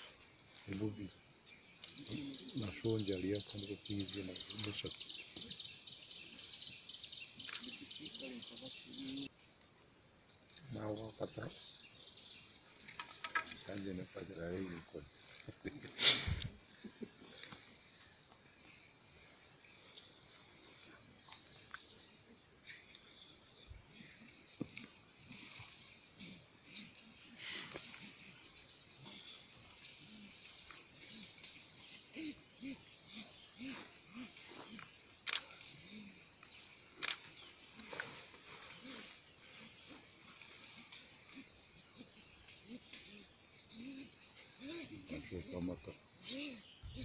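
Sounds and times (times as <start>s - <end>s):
insects buzzing: 0.0s - 47.0s
sharp clicks: 35.2s - 35.5s, 37.0s - 37.3s.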